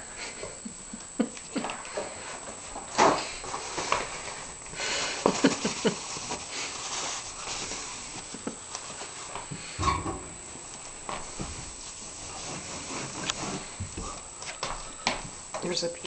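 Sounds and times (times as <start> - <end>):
paper towel swishing on floor: 2.2 - 9.8, 10.4 - 14.7.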